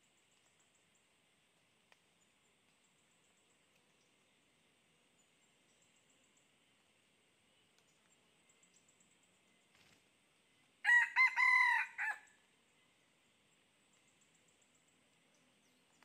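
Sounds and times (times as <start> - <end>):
rooster crowing: 10.8 - 12.4.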